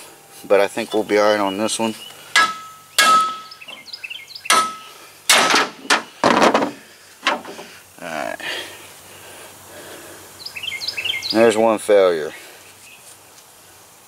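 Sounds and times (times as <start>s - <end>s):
hammer striking metal: 2.3s - 3.8s, 4.5s - 6.1s.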